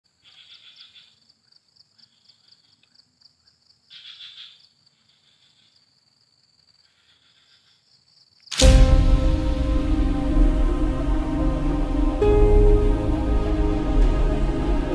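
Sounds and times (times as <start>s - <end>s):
insects trilling: 0.1s - 8.6s
loud music: 8.6s - 14.9s.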